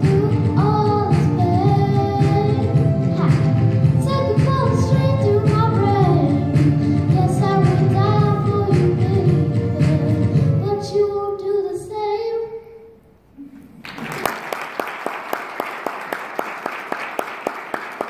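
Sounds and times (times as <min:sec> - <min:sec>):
girl singing into microphone: 0:00.0 - 0:13.2
audience applauding: 0:13.8 - 0:18.0.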